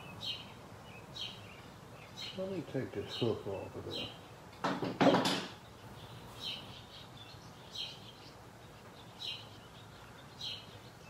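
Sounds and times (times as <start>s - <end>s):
bird chirping: 0.0s - 11.0s.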